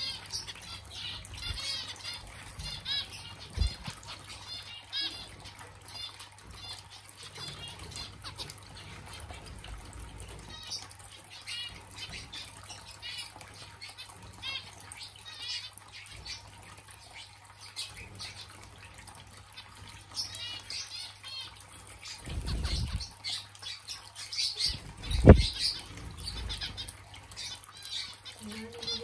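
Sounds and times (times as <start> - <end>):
finches chirping: 22.3 - 29.0.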